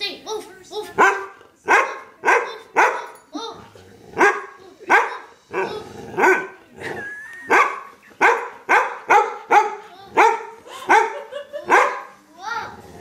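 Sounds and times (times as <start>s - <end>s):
dog barking: 1.0s - 3.2s, 4.2s - 6.6s, 7.5s - 12.2s.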